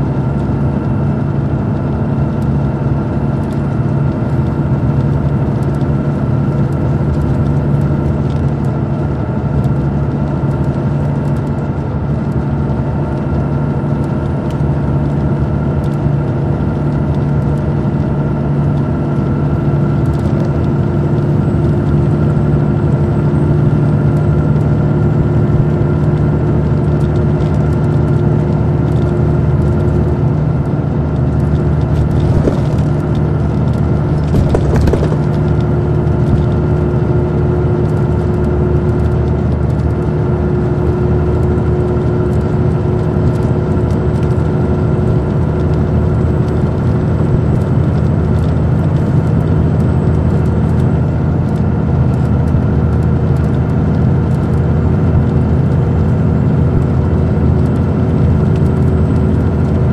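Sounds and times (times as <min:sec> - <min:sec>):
bus engine hum: 0:00.0 - 0:59.9
mechanical rattling: 0:34.0 - 0:35.5.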